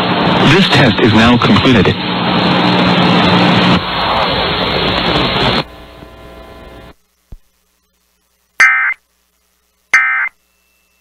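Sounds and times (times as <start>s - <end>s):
radio receiver hiss: 3.5s - 11.0s
emergency alert data tones: 8.6s - 9.0s, 9.9s - 10.4s.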